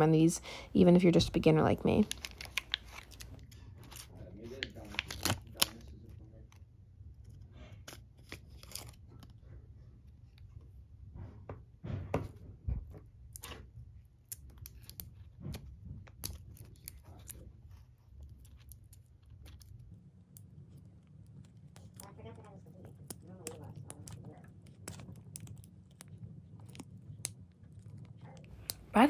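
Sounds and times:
foil lids peeling and crinkling: 0:02.0 - 0:05.9.

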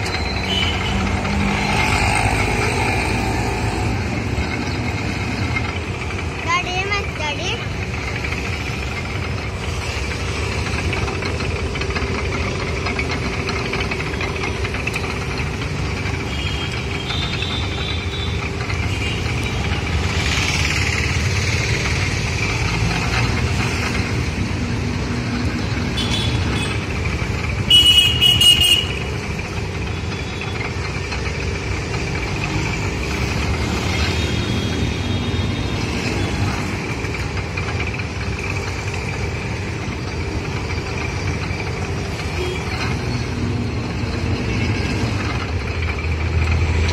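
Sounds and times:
juice crusher rumbling: 0:00.0 - 0:46.9
vehicle horn honking: 0:27.7 - 0:29.0.

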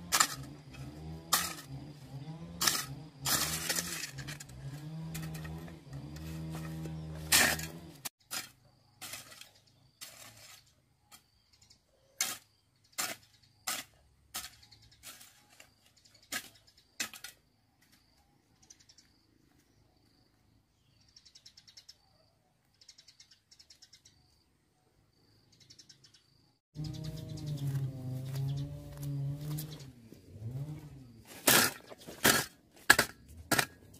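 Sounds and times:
high chirping trills: 0:25.4 - 0:30.0.

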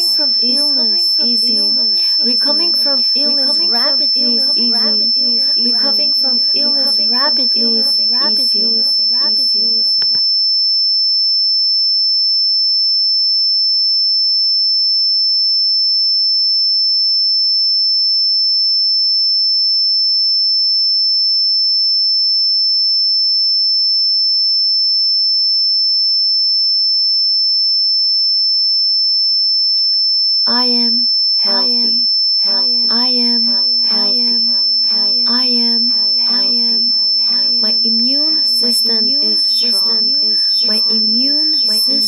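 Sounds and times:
high-pitched electronic tone: 0:00.0 - 0:10.2, 0:30.5 - 0:42.0.

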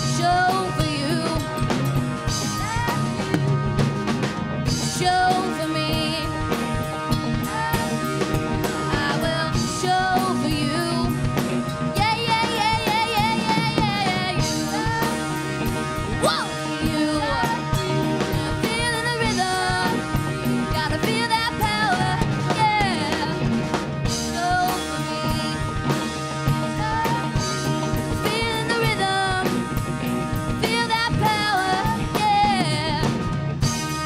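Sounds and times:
woman singing: 0:00.0 - 0:01.7, 0:04.8 - 0:06.5, 0:07.3 - 0:08.0, 0:08.6 - 0:11.3, 0:12.0 - 0:15.4, 0:16.2 - 0:23.5, 0:24.2 - 0:29.8, 0:30.6 - 0:33.2
live rock band playing: 0:00.0 - 0:34.0.

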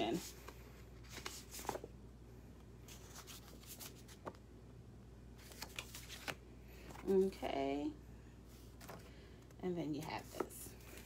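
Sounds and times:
paper sheets rustling: 0:00.0 - 0:01.9, 0:02.9 - 0:04.4, 0:05.4 - 0:07.4, 0:08.6 - 0:09.1
faint low hum: 0:00.0 - 0:11.0.

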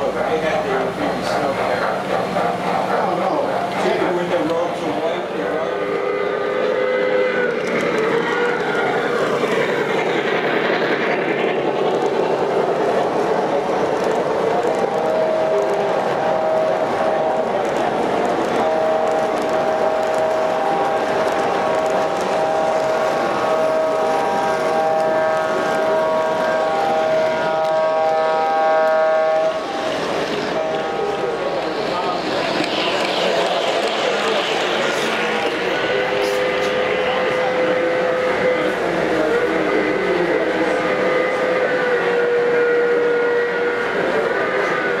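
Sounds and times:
model train wheels rumbling on track: 0:00.0 - 0:45.0
model train whistle: 0:05.6 - 0:07.6, 0:14.8 - 0:17.6, 0:18.5 - 0:29.8, 0:34.0 - 0:45.0.

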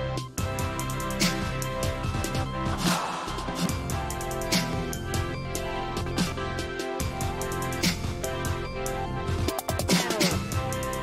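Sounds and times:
instrumental background music: 0:00.0 - 0:11.0
steady drum beat: 0:00.4 - 0:08.7, 0:09.3 - 0:11.0.

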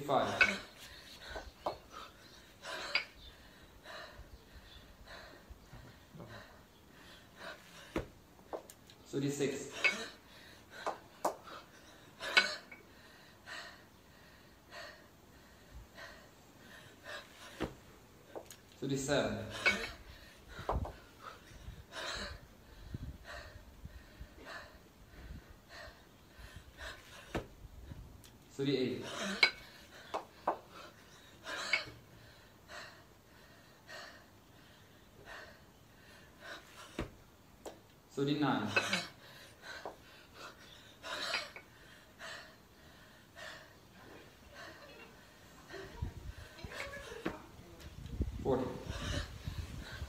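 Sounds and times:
kettlebells knocking: 0:00.2 - 0:01.9, 0:19.3 - 0:20.0, 0:20.6 - 0:21.0, 0:29.1 - 0:30.7
person breathing hard: 0:09.8 - 0:18.4, 0:19.5 - 0:28.0, 0:29.2 - 0:37.1, 0:39.0 - 0:46.7, 0:48.5 - 0:50.0.

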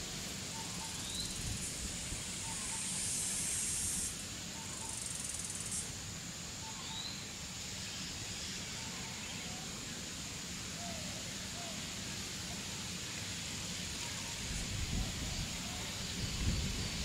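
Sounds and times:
high hissing insect buzz: 0:00.0 - 0:08.7
steady insect hiss: 0:00.0 - 0:17.0.

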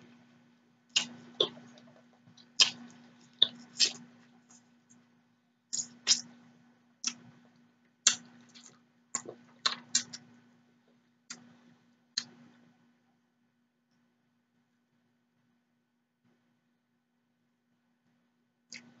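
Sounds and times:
faint steady hum: 0:00.0 - 0:19.0
chewing and wet mouth smacks: 0:01.0 - 0:04.6, 0:08.0 - 0:10.3.

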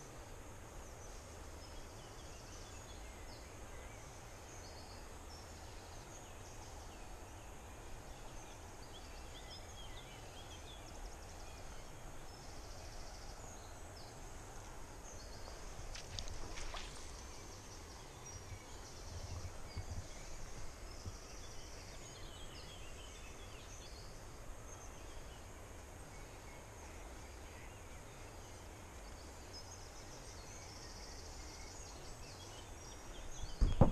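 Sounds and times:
low background hiss: 0:00.0 - 0:33.9
small birds chirping: 0:00.0 - 0:33.9.

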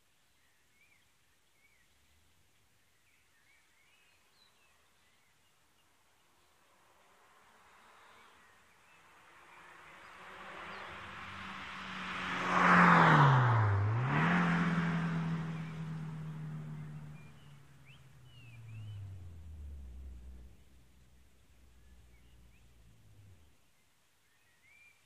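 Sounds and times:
car engine driving past: 0:06.5 - 0:23.5.

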